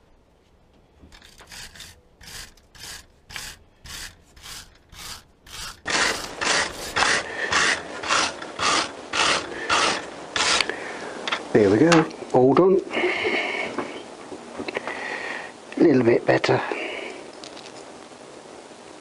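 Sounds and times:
wire brush scrubbing bolts: 0:01.1 - 0:10.8.

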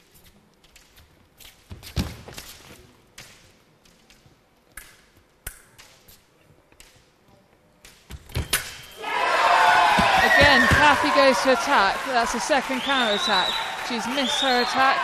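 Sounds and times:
shoes tapping and stamping: 0:09.9 - 0:11.1.

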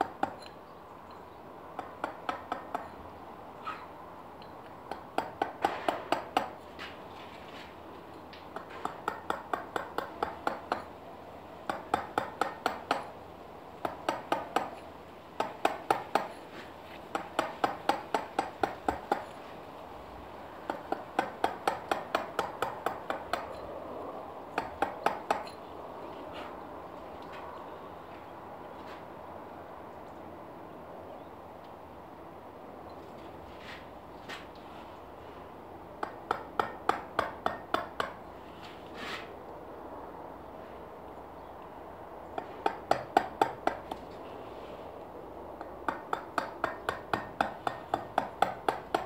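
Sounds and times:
chisel tapping stone: 0:00.0 - 0:00.6, 0:01.8 - 0:03.0, 0:04.9 - 0:06.6, 0:08.5 - 0:10.9, 0:11.7 - 0:13.1, 0:13.8 - 0:14.8, 0:15.4 - 0:16.4, 0:17.1 - 0:19.4, 0:20.7 - 0:23.6, 0:24.5 - 0:25.6, 0:36.0 - 0:38.2, 0:42.4 - 0:44.0, 0:45.6 - 0:49.0.

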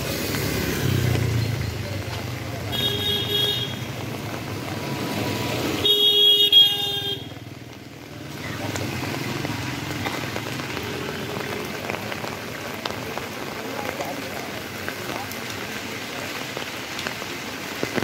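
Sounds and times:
traffic on wet road: 0:00.0 - 0:18.0
vehicle horn: 0:02.7 - 0:03.9, 0:05.8 - 0:07.3.

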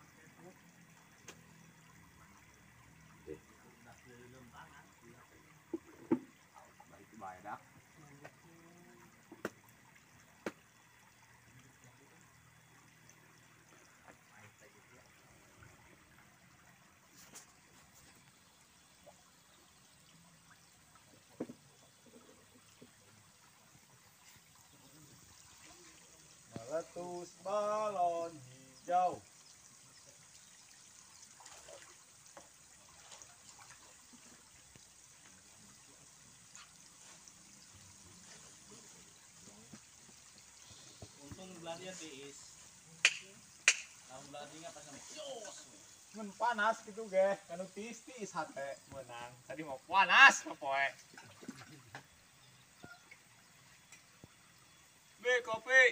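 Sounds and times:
water trickling: 0:00.0 - 0:55.9
sharp clicks: 0:43.0 - 0:44.0.

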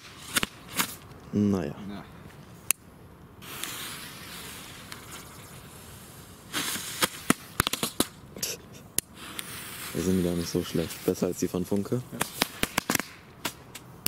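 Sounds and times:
firework sparks crackling: 0:00.0 - 0:01.6, 0:02.5 - 0:14.0
torch lighter hissing: 0:03.4 - 0:11.3.

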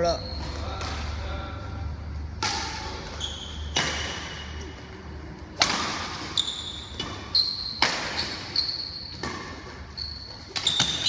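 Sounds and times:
shoe squeaks: 0:00.0 - 0:00.7, 0:03.0 - 0:04.6, 0:06.2 - 0:11.0
rackets hitting shuttlecock: 0:02.3 - 0:11.0.

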